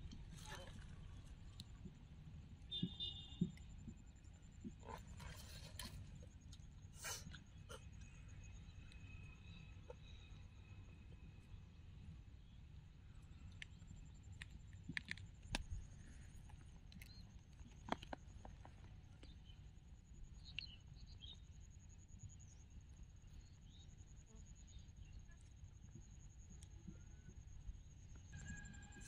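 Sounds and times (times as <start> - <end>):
faint high-pitched trill: 28.2 - 29.0.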